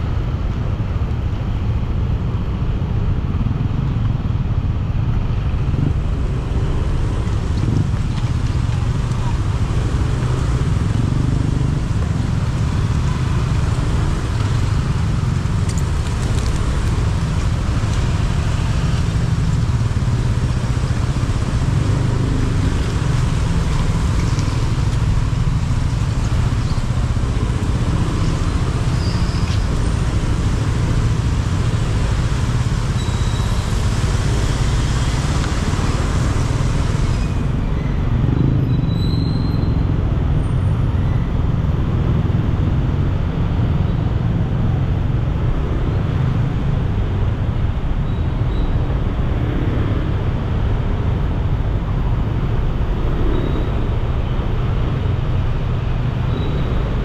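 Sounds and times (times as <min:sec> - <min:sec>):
motorbike engine rumble: 0:02.9 - 0:48.8
rain hissing on wet road: 0:06.8 - 0:37.5.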